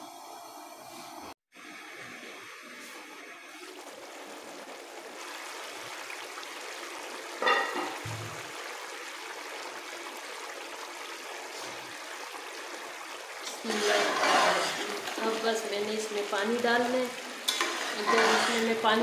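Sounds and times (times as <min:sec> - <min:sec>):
pot boiling and bubbling: 0:00.2 - 0:19.0
metal lid clanking: 0:07.4 - 0:08.2, 0:17.5 - 0:18.7.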